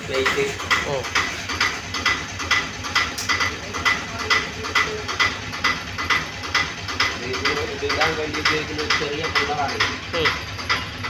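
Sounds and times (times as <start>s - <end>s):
steady ticking beat: 0.0s - 11.0s.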